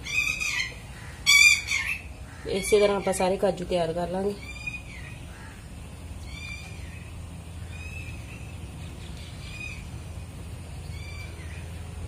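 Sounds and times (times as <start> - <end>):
bird calling: 0.0 - 3.5, 4.3 - 12.0
low hum: 0.0 - 12.0.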